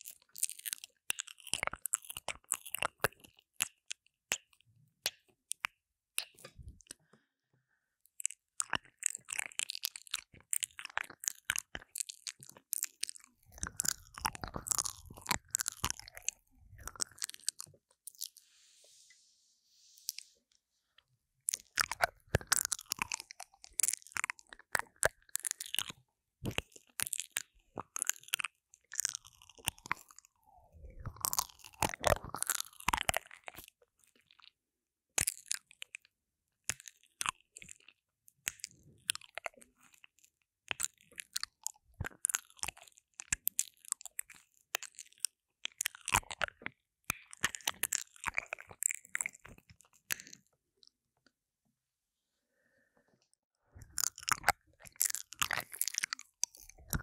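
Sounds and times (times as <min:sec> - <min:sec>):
wet mouth sounds: 0:08.2 - 0:20.4, 0:21.4 - 0:33.7, 0:40.8 - 0:50.5, 0:53.8 - 0:57.0.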